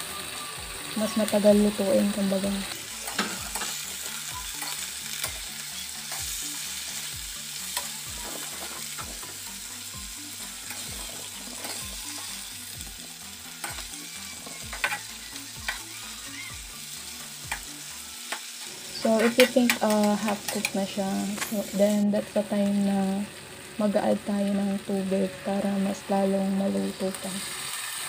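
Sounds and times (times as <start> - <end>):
vegetables sizzling in oil: 0.0 - 28.0
metal spatula scraping a wok: 7.7 - 9.1, 14.5 - 15.8, 19.0 - 20.0.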